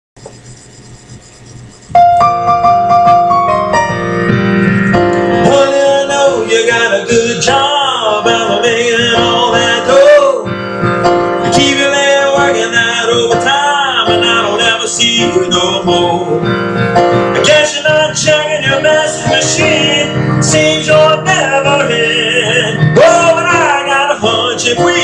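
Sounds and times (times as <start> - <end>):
electronic keyboard chords: 0.4 - 25.0
keyboard melody with sliding pitches: 1.3 - 25.0.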